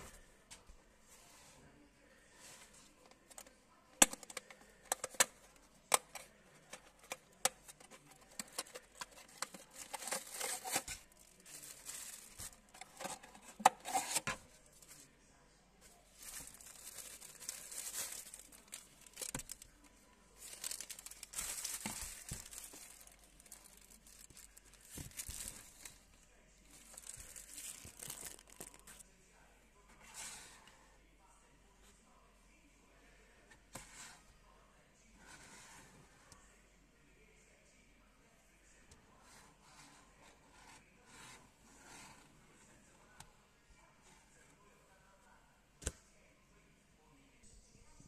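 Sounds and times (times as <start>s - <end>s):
paper leaflet crinkling: 6.8s - 14.4s, 16.2s - 19.6s, 20.4s - 26.0s, 26.7s - 29.0s
plastic wrapping stretching: 6.8s - 14.4s, 16.2s - 19.7s, 20.4s - 26.0s, 26.7s - 29.0s.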